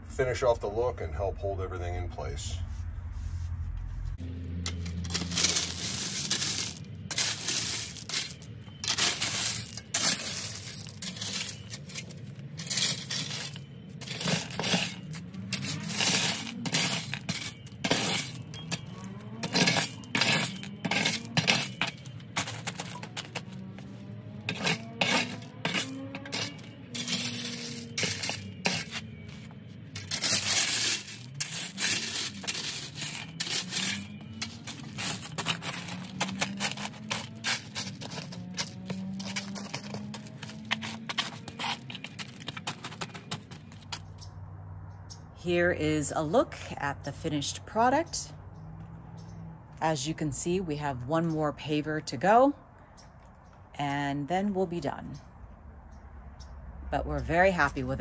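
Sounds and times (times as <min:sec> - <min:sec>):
rocks clattering together: 0:24.5 - 0:44.2.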